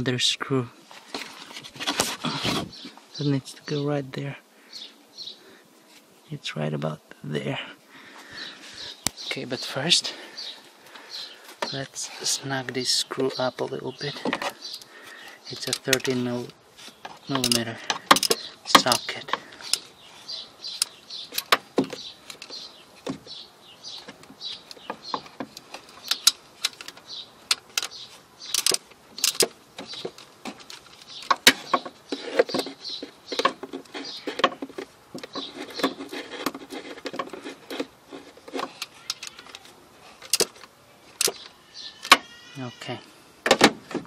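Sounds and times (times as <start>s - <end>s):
socket ratchet clicking: 25.5s - 30.0s.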